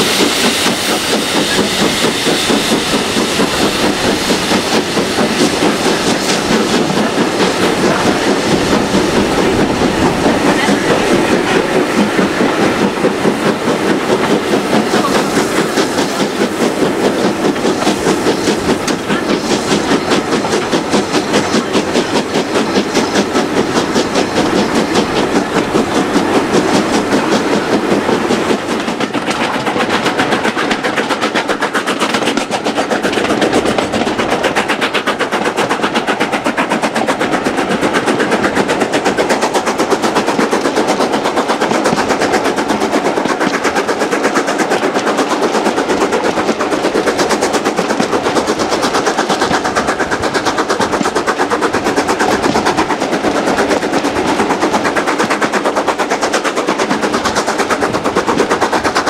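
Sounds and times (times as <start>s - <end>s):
steam locomotive exhaust beat: 0.0s - 59.0s
train wheels clattering: 0.0s - 59.0s.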